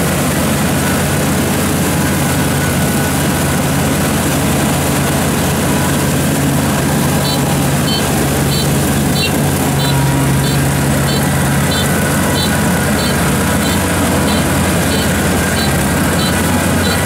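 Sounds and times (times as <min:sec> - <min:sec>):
combine harvester running: 0:00.0 - 0:17.0
short high warning beeps: 0:07.2 - 0:17.0.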